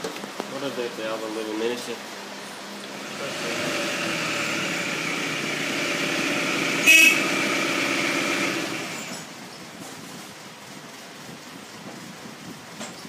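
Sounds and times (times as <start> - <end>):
motor vehicle running: 3.0 - 10.2
short horn toot: 6.8 - 7.5.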